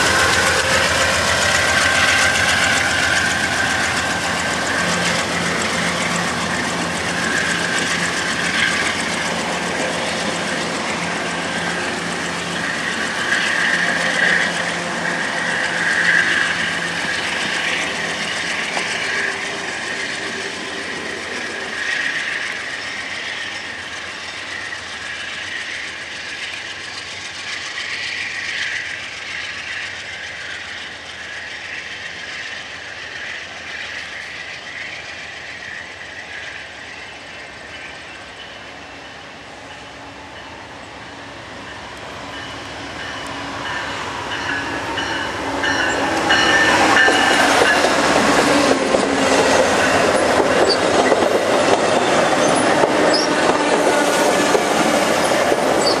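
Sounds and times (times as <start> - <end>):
train cars clattering over rails: 0.0 - 30.0, 41.6 - 56.0.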